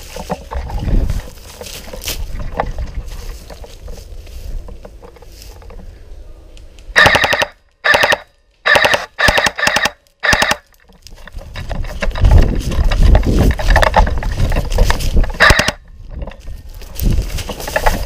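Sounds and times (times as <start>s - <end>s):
wind on microphone: 0.0s - 4.8s, 11.2s - 18.0s
low rumbling of movement: 0.0s - 6.9s, 10.8s - 18.0s
airsoft rifle full-auto bursts: 7.0s - 10.6s, 15.4s - 15.8s.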